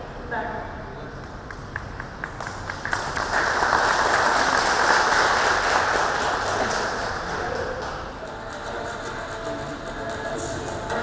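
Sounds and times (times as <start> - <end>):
audience applauding: 1.8 - 8.1.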